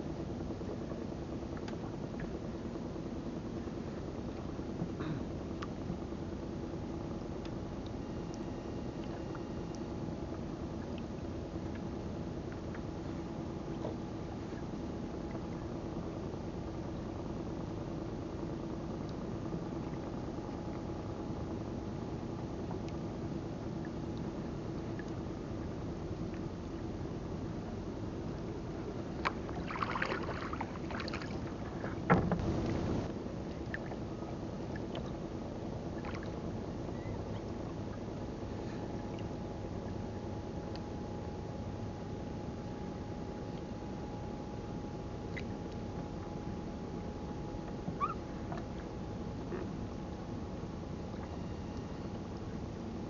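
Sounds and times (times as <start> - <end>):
wind and water rumble: 0.0 - 53.0
boat engine humming: 0.2 - 53.0
wind noise: 32.0 - 33.1.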